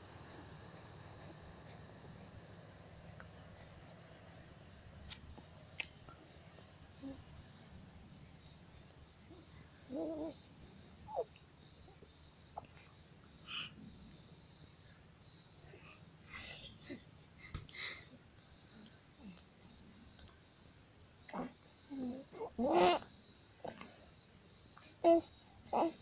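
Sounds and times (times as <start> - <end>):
cricket chirping: 0.0 - 26.0
baby cooing: 9.9 - 10.4, 21.3 - 23.0, 25.0 - 26.0.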